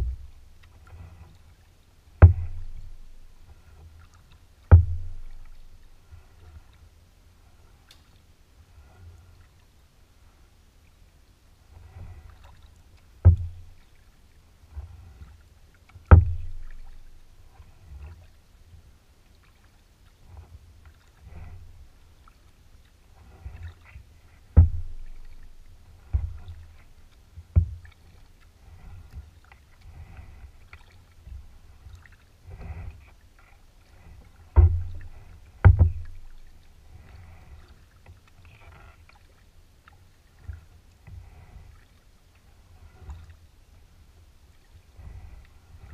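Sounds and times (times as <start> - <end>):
sharp knocks on hull: 0.0 - 0.3, 2.2 - 3.3, 4.7 - 5.7, 13.2 - 13.8, 16.1 - 17.1, 24.5 - 26.6, 27.5 - 27.8, 34.5 - 36.5
paddle strokes in water: 0.0 - 45.9
water moving along hull: 0.0 - 45.9.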